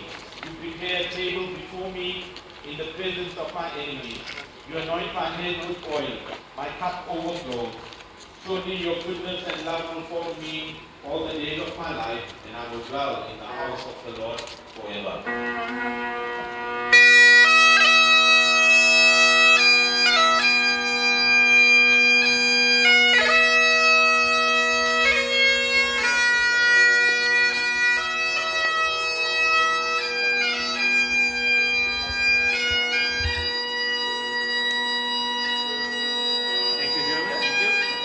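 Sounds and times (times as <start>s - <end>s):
bagpipes playing slow tune: 13.2s - 38.0s.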